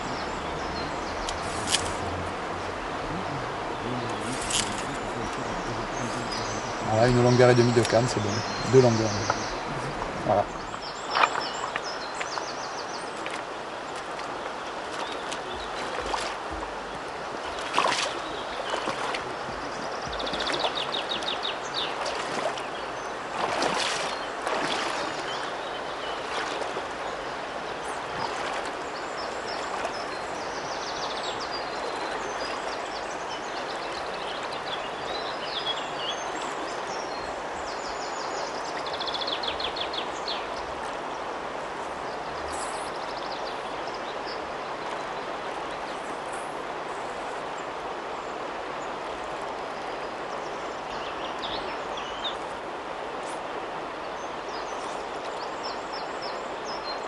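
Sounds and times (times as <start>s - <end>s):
splashing steps in water: 0.0s - 2.8s, 4.1s - 12.5s, 13.1s - 30.5s
river rushing: 0.0s - 57.0s.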